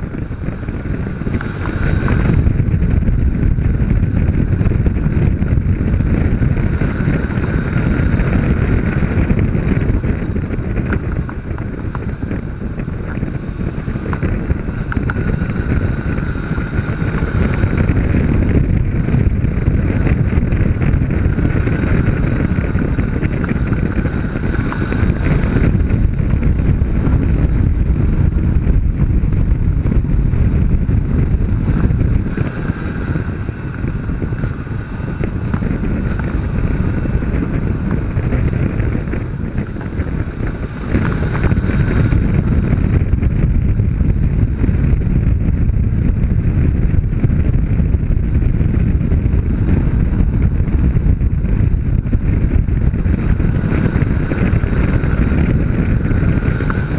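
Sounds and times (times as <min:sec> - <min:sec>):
motorcycle engine running: 0:00.0 - 0:56.9
wind buffeting microphone: 0:00.0 - 0:56.9.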